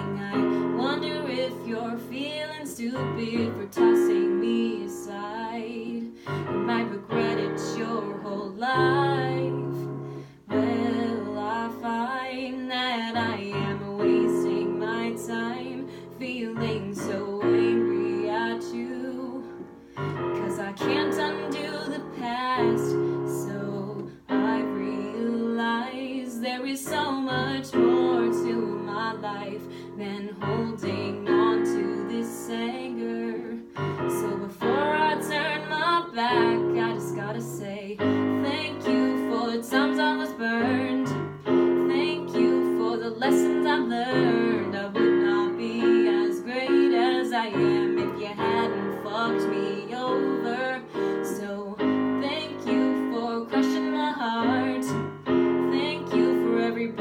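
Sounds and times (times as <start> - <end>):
piano chords: 0.0 - 57.0
woman singing: 0.0 - 57.0.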